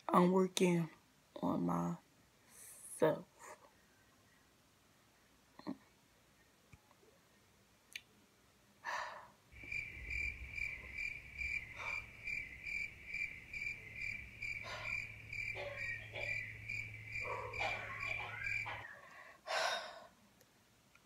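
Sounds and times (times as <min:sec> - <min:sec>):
crickets chirping: 0:09.5 - 0:19.0
low hum: 0:09.6 - 0:19.3
short breath: 0:11.7 - 0:12.1, 0:14.6 - 0:15.1.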